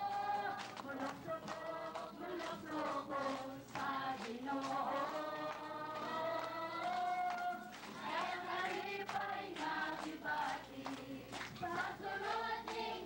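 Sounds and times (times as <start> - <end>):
woman singing into microphone: 0.0 - 7.6
congregation singing: 0.0 - 13.0.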